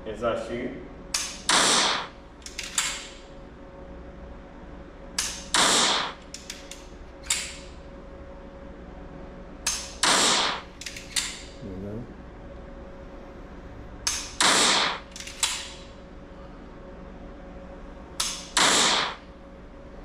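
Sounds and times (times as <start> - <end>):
pistol dry-fire clicks: 15.1 - 15.7.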